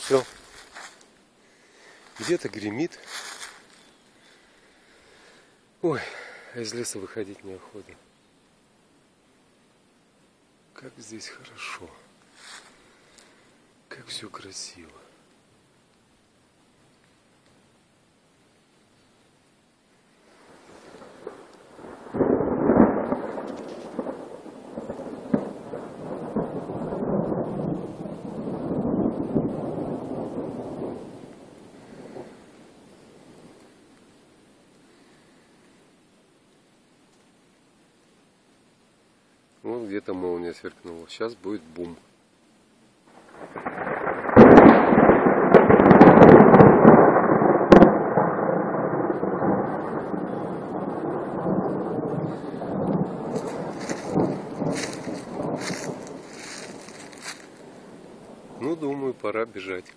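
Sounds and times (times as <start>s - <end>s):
thunder rumbling: 20.4s - 33.6s, 43.1s - 59.6s.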